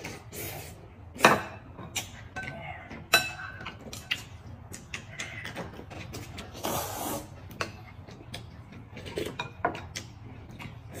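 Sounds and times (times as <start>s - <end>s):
slurping noodle soup: 6.0s - 8.0s.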